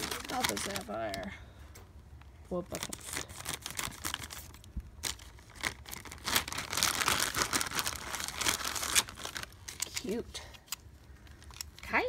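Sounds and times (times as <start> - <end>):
plastic bag crinkling: 0.0 - 1.3, 2.6 - 10.2.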